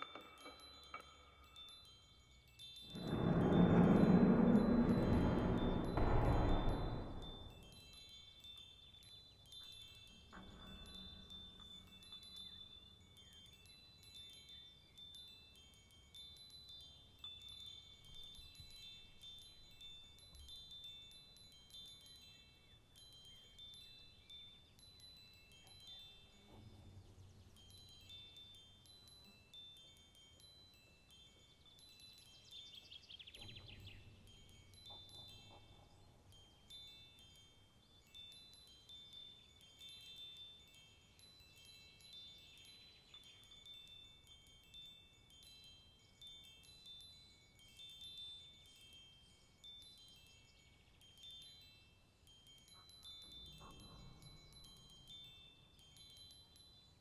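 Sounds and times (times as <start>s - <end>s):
high tinkling chime notes: 0.0s - 57.0s
soft low rumble: 2.9s - 7.6s.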